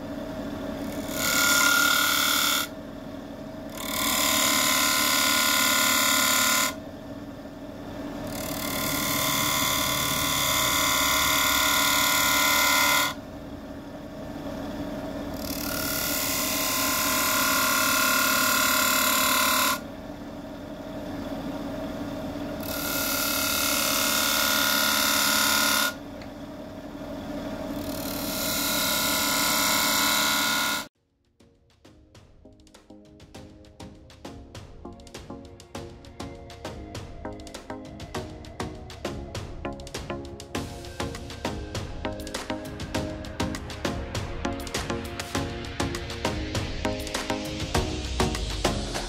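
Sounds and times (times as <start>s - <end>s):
lathe motor hum: 0.0s - 30.9s
tool scraping spinning wood: 0.0s - 30.9s.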